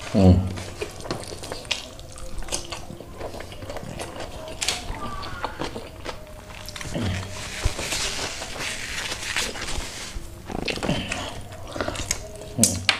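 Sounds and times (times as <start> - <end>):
wet chewing and lip-smacking: 0.5 - 12.9
person humming: 4.3 - 12.9.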